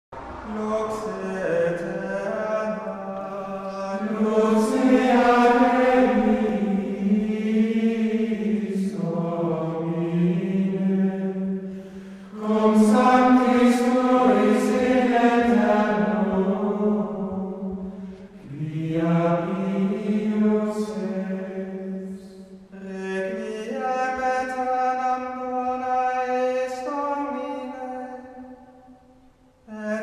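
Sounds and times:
low drone: 0:00.1 - 0:20.2
slow chanted vocal music: 0:00.2 - 0:30.0.

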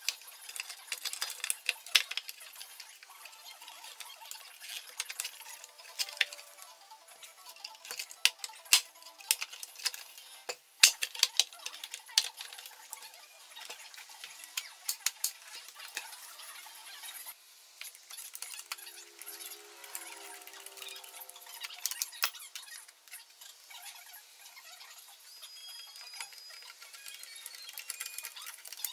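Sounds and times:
small clinks of parts and tools: 0:00.0 - 0:16.2, 0:25.6 - 0:28.9
plastic housing clicking and knocking: 0:07.5 - 0:12.8.

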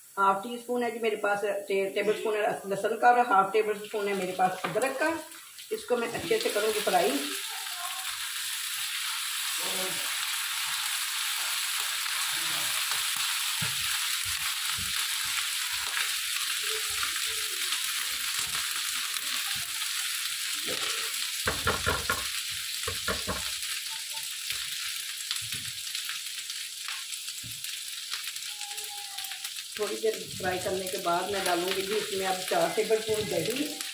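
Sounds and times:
onions sizzling in hot oil: 0:00.0 - 0:33.9
spatula scraping and knocking pan: 0:21.5 - 0:23.5.

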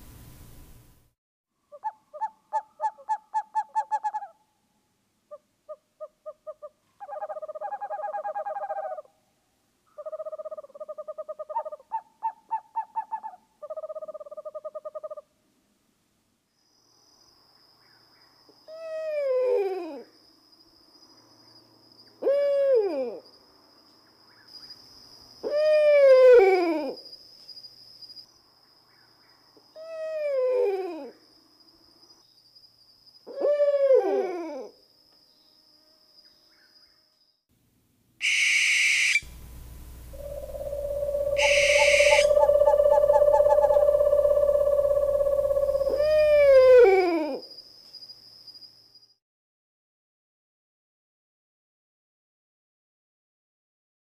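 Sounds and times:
owl hooting: 0:01.7 - 0:04.4, 0:05.3 - 0:09.1, 0:10.0 - 0:15.2, 0:18.7 - 0:20.1, 0:22.2 - 0:23.2, 0:25.4 - 0:27.0, 0:33.3 - 0:34.7, 0:38.2 - 0:47.4
faint high whine: 0:38.3 - 0:46.4
long steady loud tone: 0:39.2 - 0:45.9
low hum: 0:39.2 - 0:46.0.

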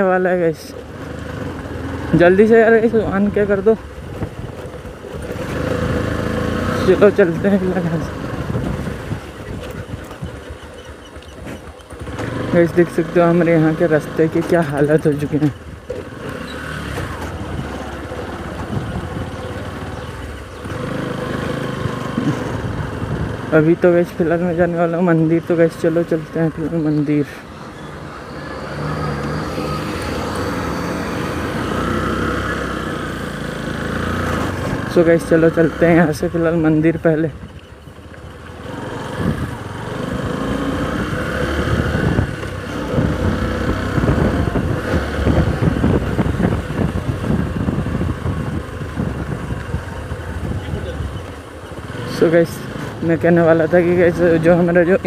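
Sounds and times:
small motorcycle engine running: 0:00.8 - 0:55.0
wind on microphone: 0:08.1 - 0:10.5, 0:17.0 - 0:20.8, 0:41.0 - 0:51.4.

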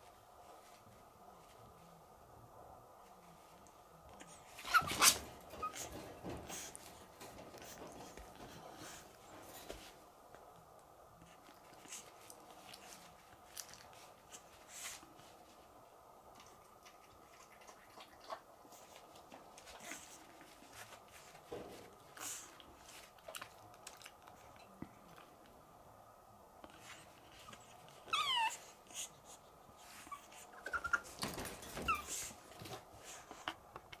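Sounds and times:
puppy whining and whimpering: 0:04.6 - 0:06.6, 0:27.4 - 0:29.1, 0:30.0 - 0:32.3.

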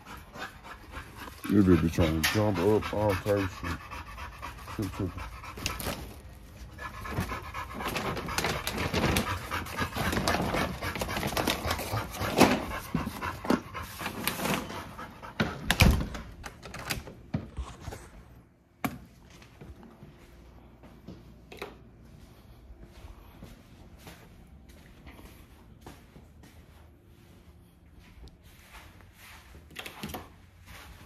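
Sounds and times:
dog panting heavily: 0:00.0 - 0:16.3.

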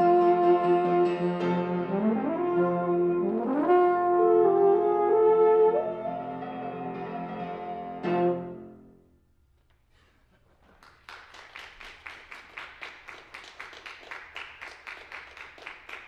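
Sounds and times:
audience applauding: 0:10.6 - 0:16.0.

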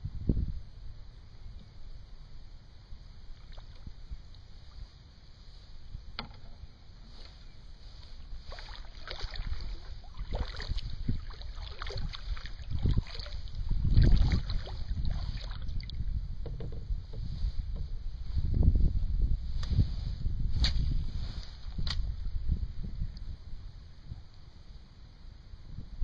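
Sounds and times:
wind rumbling on microphone: 0:00.0 - 0:26.0
paddle splashing in water: 0:03.3 - 0:03.9, 0:07.2 - 0:16.0.

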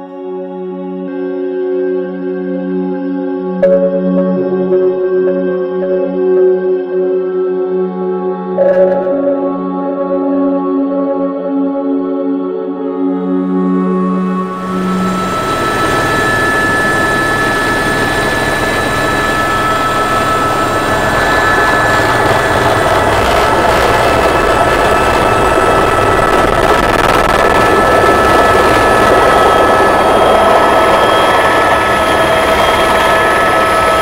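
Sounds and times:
thin high whine: 0:13.5 - 0:34.0
helicopter engine and rotor noise: 0:13.9 - 0:34.0.

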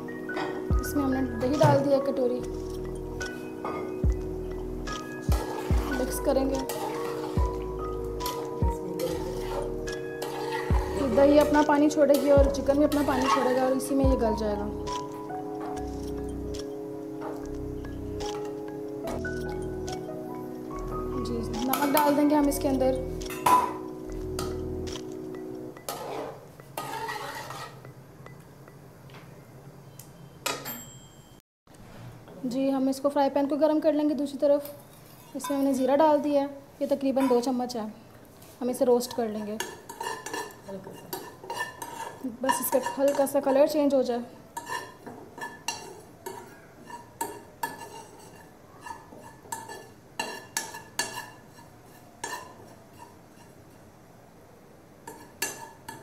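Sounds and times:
metal spatula scraping a pot: 0:02.4 - 0:03.8, 0:04.9 - 0:14.0, 0:25.8 - 0:27.9, 0:34.9 - 0:35.8, 0:39.0 - 0:43.6, 0:44.6 - 0:53.8, 0:55.0 - 0:56.0.

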